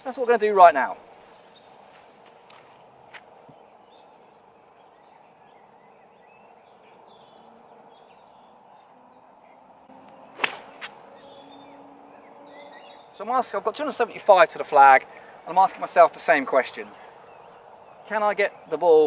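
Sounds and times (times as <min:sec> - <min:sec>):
faint outdoor hiss: 0:00.0 - 0:19.0
golf club striking ball: 0:10.0 - 0:11.4.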